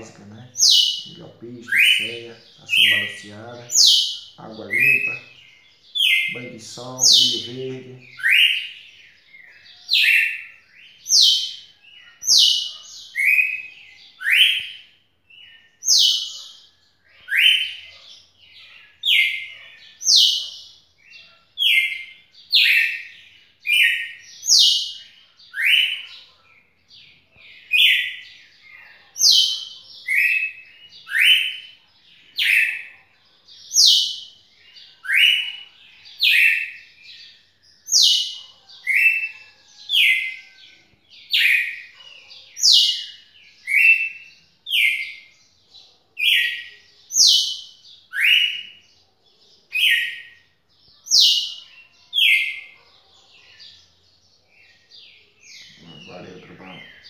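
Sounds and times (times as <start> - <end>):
bird whistling song: 8.1 - 14.9, 21.6 - 26.1, 29.2 - 31.7, 35.0 - 36.9, 37.8 - 40.7, 41.3 - 45.3, 46.2 - 48.8, 49.7 - 50.4, 51.0 - 52.6.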